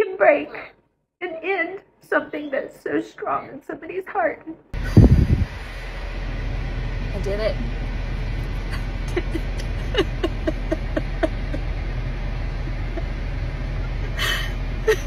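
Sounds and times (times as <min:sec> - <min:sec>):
car cabin hum: 0:05.0 - 0:15.0
woman sobbing: 0:08.7 - 0:11.8, 0:13.8 - 0:15.0.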